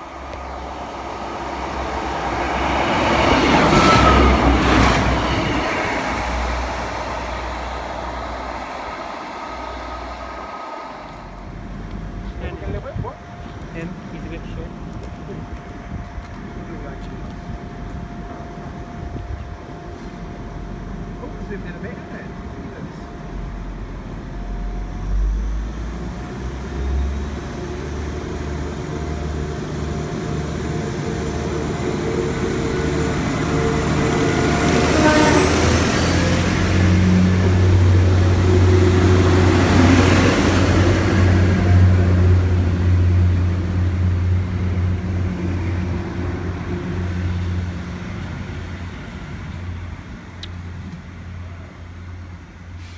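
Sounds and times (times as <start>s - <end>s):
diesel train engines revving: 0.0s - 52.9s.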